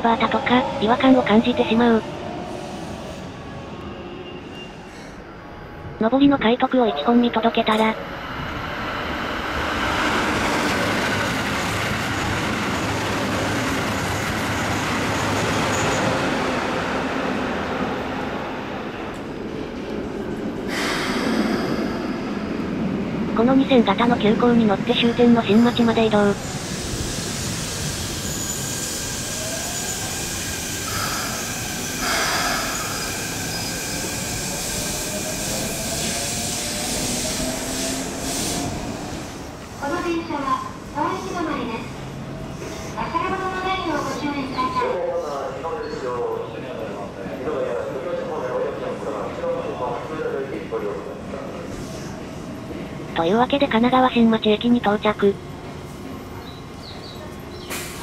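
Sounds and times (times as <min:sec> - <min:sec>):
train wheels on rails: 0:25.0 - 0:44.2, 0:55.6 - 0:58.0.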